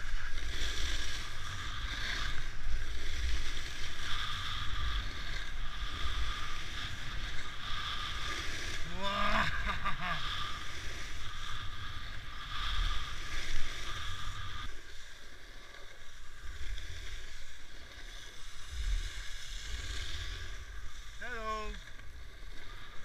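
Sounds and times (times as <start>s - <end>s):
skis carving on snow: 0.0s - 23.0s
wind rumbling on microphone: 0.0s - 23.0s
person calling out: 8.9s - 9.5s, 21.2s - 21.8s.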